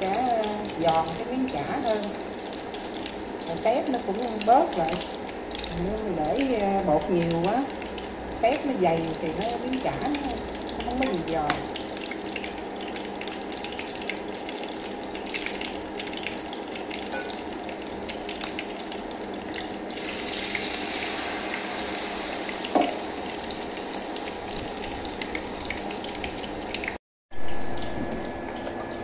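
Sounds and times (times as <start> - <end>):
hot oil sizzling and crackling: 0.0 - 27.8.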